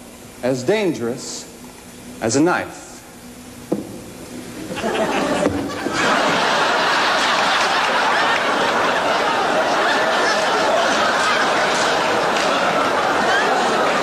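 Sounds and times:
audience laughing: 0:04.6 - 0:14.0.

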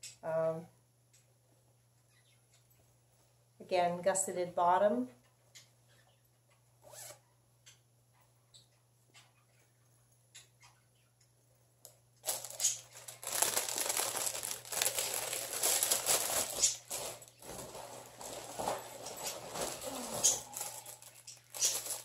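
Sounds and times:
plastic bag crinkling: 0:12.2 - 0:22.0.

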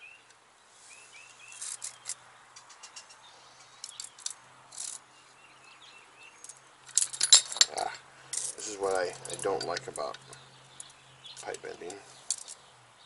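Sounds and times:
bird chirping: 0:00.0 - 0:13.0
metallic tool clicks and clinks: 0:03.8 - 0:05.0, 0:06.4 - 0:12.6.

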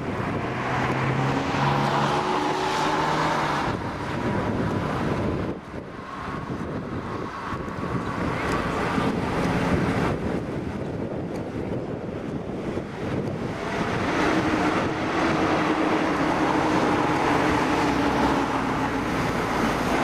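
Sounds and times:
wind gusting across microphone: 0:00.0 - 0:20.0.

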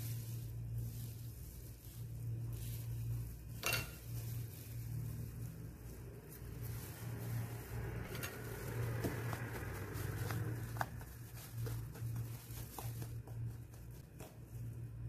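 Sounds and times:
low steady hum: 0:00.0 - 0:15.0
wooden spoon scraping glass bowl: 0:06.6 - 0:09.4.

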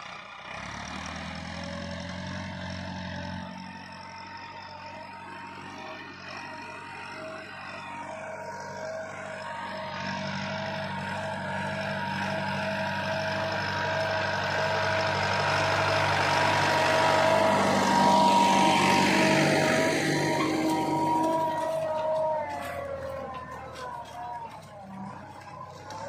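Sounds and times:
tractor diesel engine under load: 0:00.0 - 0:26.0.

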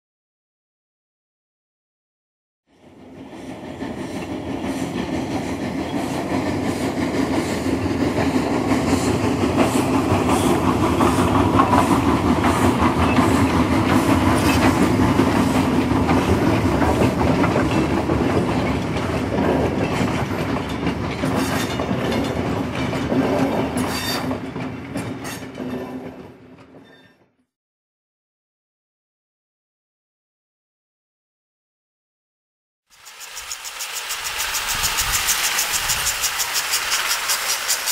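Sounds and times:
train rumbling on rails: 0:02.7 - 0:27.2, 0:32.9 - 0:37.9
wheels clickety-clack: 0:03.0 - 0:26.9, 0:32.9 - 0:37.9.

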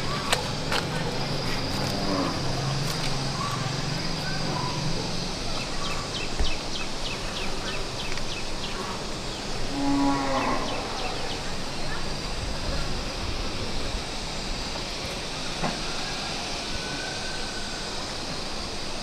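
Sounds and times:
steady outdoor hiss: 0:00.0 - 0:19.0
low drawn-out animal call: 0:09.6 - 0:12.0.

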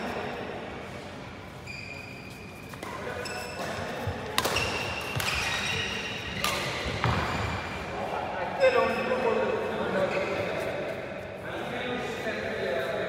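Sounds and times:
shoes squeaking on court: 0:01.5 - 0:07.8
racket hitting shuttlecock: 0:02.7 - 0:07.3.

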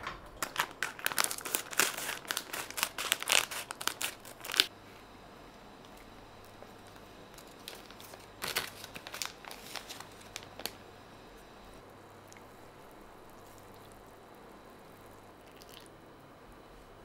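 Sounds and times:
faint steady hum: 0:00.0 - 0:17.0
plastic packet crinkling: 0:00.4 - 0:04.7, 0:06.9 - 0:10.8.

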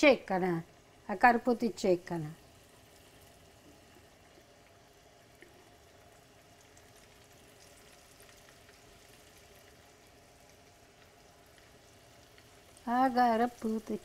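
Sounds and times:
chicken frying in oil: 0:00.0 - 0:14.0.

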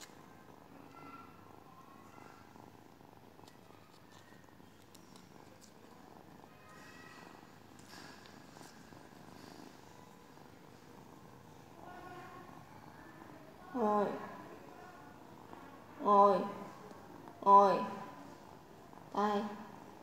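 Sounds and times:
cat purring: 0:00.0 - 0:20.0
light scratchy clicks: 0:03.4 - 0:06.1.

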